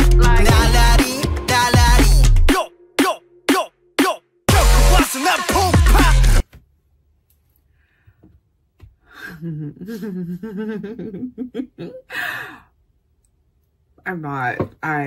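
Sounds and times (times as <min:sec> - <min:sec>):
woman chuckling: 0:09.1 - 0:12.6.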